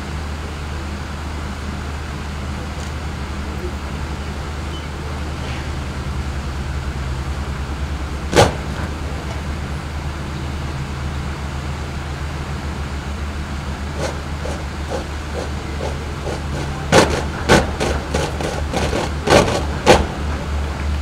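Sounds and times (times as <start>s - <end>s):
steady low hum: 0.0s - 21.0s
boots stamping in unison: 8.3s - 9.4s, 14.0s - 20.2s
footfalls on parade ground: 8.3s - 9.7s, 14.0s - 21.0s.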